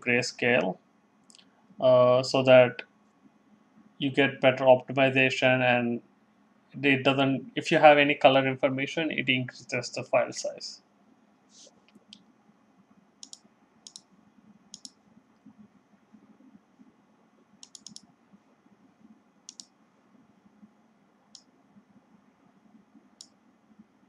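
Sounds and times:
faint steady hiss: 0.0s - 24.0s
computer mouse clicks: 13.2s - 16.3s, 17.6s - 18.1s, 19.0s - 19.8s, 21.3s - 21.6s, 22.7s - 23.9s.

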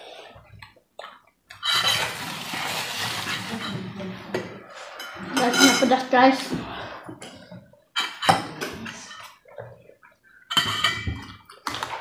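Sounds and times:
forks against plates: 3.1s - 9.4s, 10.5s - 12.0s.

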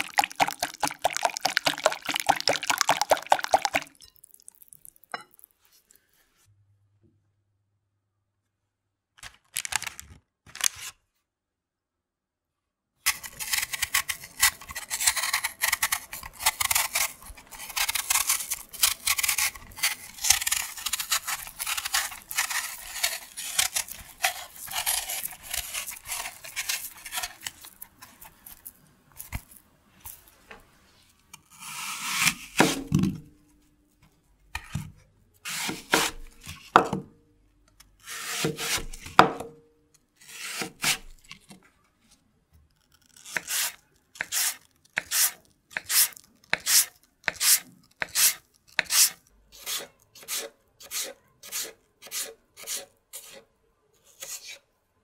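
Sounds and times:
knife cutting on wooden board: 13.1s - 27.8s, 35.5s - 37.0s, 43.3s - 53.4s
knife peeling apple: 13.1s - 29.6s, 31.3s - 33.0s, 35.4s - 36.9s, 38.0s - 39.5s, 40.2s - 41.6s, 42.8s - 54.7s.

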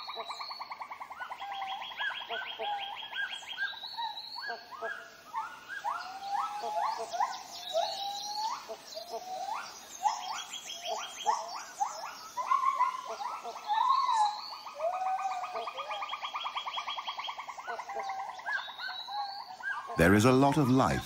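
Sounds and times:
whoop-like animal calls: 5.8s - 10.2s, 12.4s - 16.1s.

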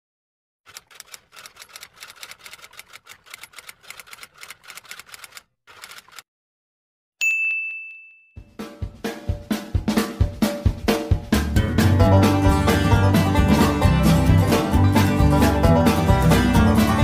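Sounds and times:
typewriter bell ding: 7.2s - 8.5s
drum-led music: 8.4s - 17.0s.

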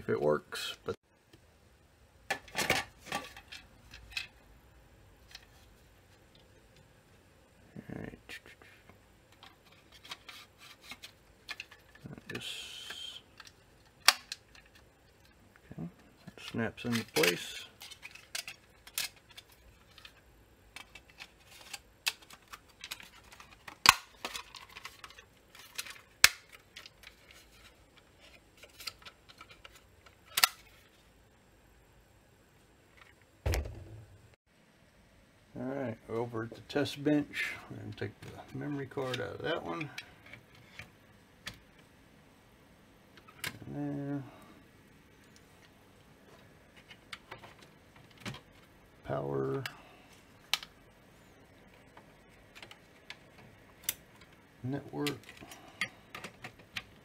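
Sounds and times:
sharp plastic snaps: 12.8s - 14.7s
plastic and metal parts clicking: 16.4s - 27.4s.

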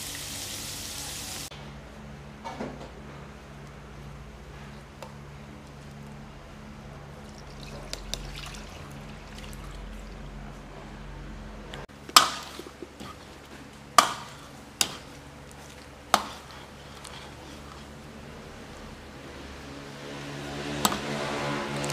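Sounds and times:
water bubbling in a pot: 7.2s - 10.3s
metal ladle stirring in a wok: 12.0s - 18.3s.

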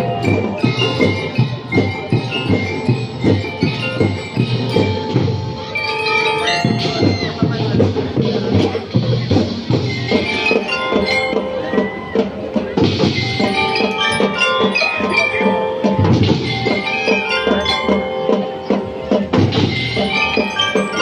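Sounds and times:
marching drum beat: 0.0s - 5.8s, 6.4s - 21.0s
bell lyres melody: 0.0s - 21.0s.

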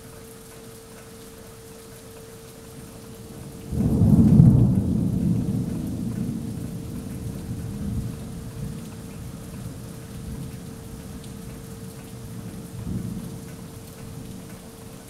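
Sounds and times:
rain falling: 0.0s - 15.0s
thunder rumbling: 3.3s - 10.5s.

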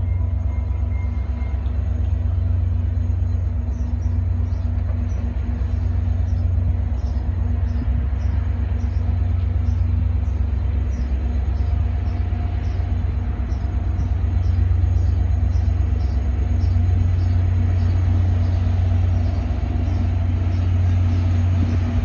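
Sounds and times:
diesel locomotive rumble: 0.0s - 22.0s.

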